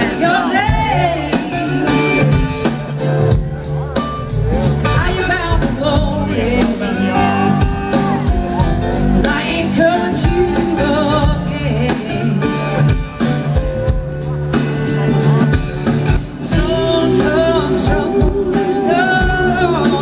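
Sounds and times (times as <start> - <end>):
woman singing: 0.0 - 2.9, 4.9 - 8.3, 9.2 - 13.1, 16.4 - 20.0
blues-rock band playing: 0.0 - 20.0.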